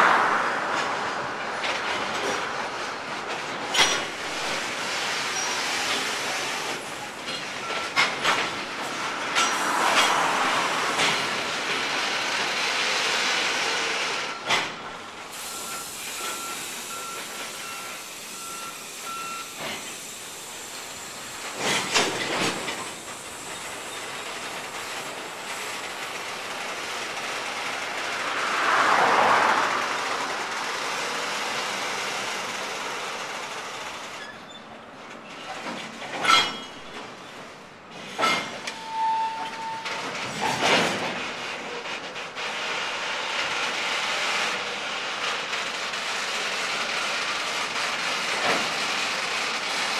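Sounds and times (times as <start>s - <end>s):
train wheels rolling on rails: 0.0s - 49.9s
sharp clanks and knocks: 35.5s - 37.1s.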